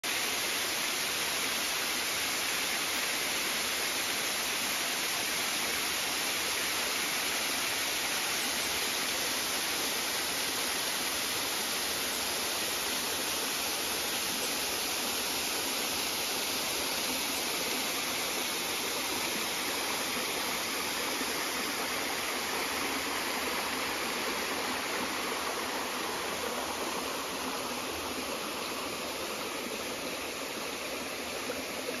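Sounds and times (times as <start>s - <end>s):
waterfall rushing water: 0.1s - 32.0s.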